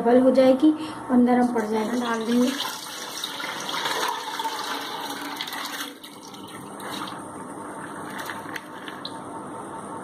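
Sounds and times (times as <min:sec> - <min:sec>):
water and grains pouring into a pot: 0:02.2 - 0:06.5.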